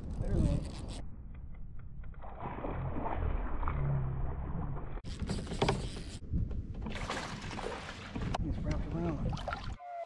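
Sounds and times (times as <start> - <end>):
water sloshing against hull: 2.0 - 9.8.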